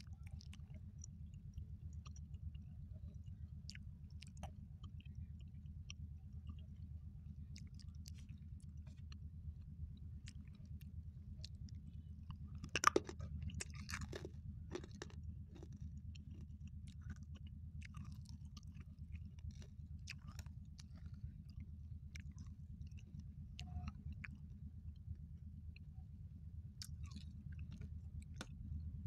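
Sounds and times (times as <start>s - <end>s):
steady low hum: 0.0s - 29.0s
candy crunching: 12.6s - 21.2s.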